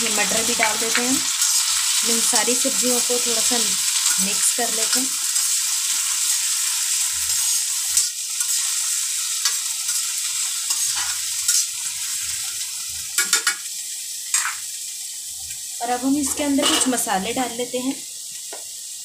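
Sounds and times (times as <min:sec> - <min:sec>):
vegetables sizzling in pan: 0:00.0 - 0:19.0
metal spatula scraping pan: 0:10.7 - 0:11.8, 0:16.2 - 0:17.1.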